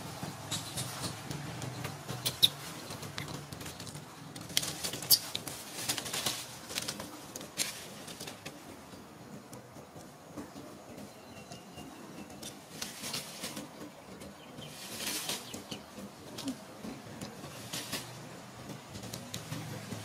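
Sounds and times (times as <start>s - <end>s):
rustling on dry leaves: 0.0s - 9.1s, 11.9s - 20.0s.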